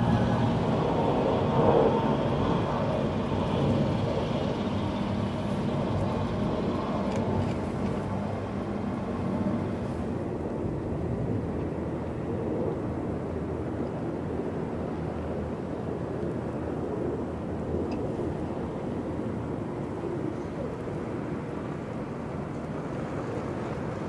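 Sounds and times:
low outdoor rumble: 0.0s - 24.0s.

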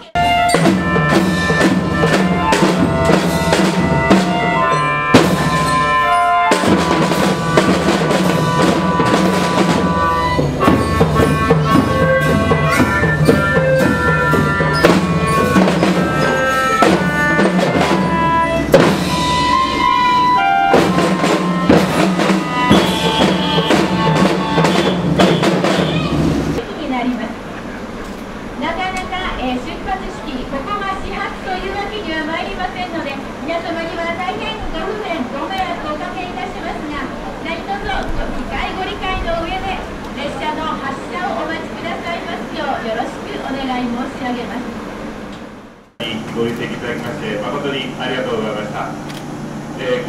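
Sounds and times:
marching band melody: 0.0s - 26.6s
snare and bass drums marching: 0.1s - 26.6s.

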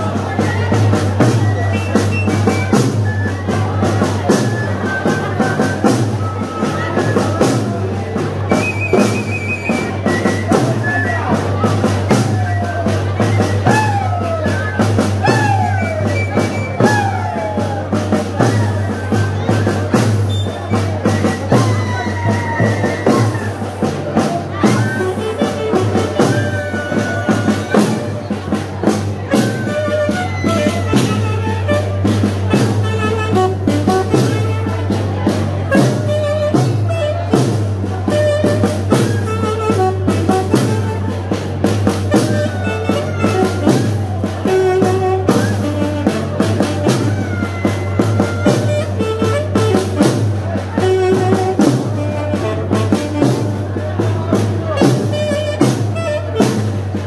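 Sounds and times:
snare and bass drum beat: 0.0s - 57.0s
saxophone melody: 24.6s - 28.2s, 29.2s - 34.9s, 38.1s - 41.2s, 42.1s - 50.2s, 50.8s - 53.6s.

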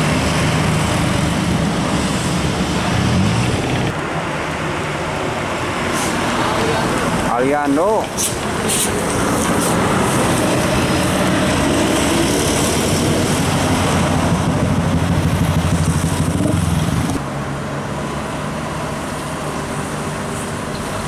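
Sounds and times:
road noise: 0.0s - 21.0s
vehicles driving past loudly: 0.0s - 21.0s.

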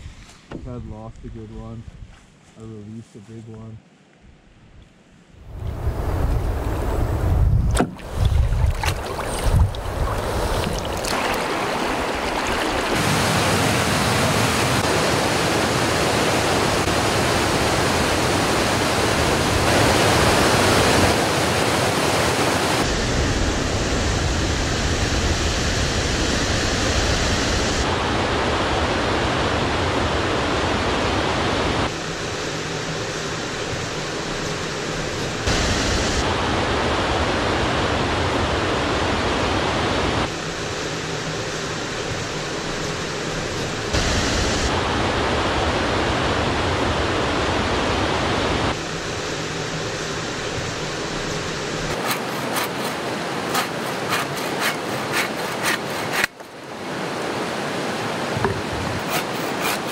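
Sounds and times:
whitewater rushing: 7.9s - 22.9s, 45.4s - 59.9s.

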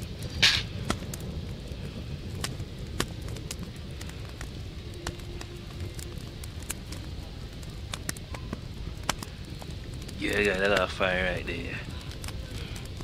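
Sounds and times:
low fire rumble: 0.0s - 13.0s
wood fire crackling and popping: 0.0s - 13.0s.

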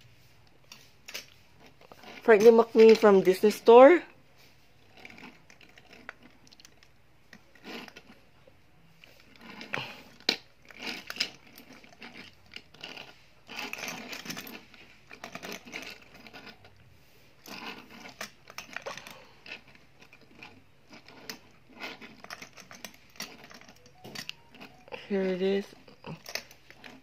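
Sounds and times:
toy cars scraping on tabletop: 0.7s - 3.8s, 9.0s - 23.6s.

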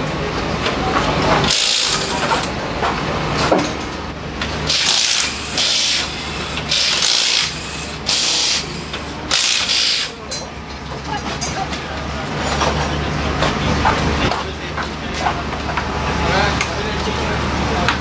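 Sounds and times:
cordless impact wrench bursts: 1.5s - 2.5s, 4.7s - 10.2s.

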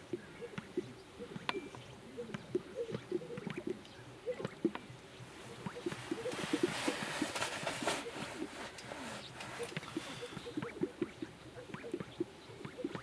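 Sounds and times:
grouse popping and cooing: 0.0s - 13.0s.

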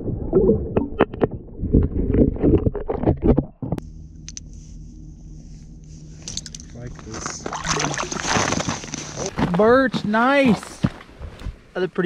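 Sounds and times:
rumble of water: 0.0s - 9.8s
low hum with faint hiss: 3.8s - 12.0s.

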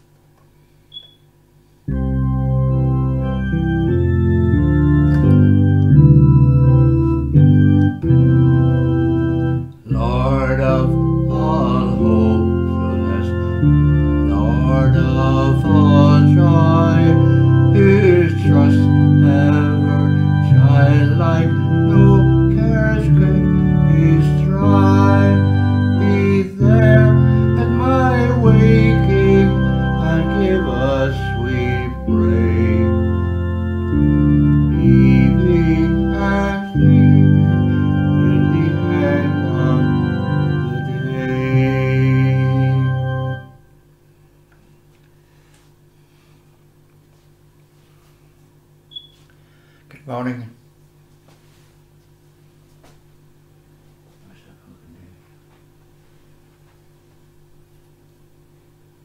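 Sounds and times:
organ chords: 1.8s - 44.4s
wavering organ melody: 1.9s - 43.8s.

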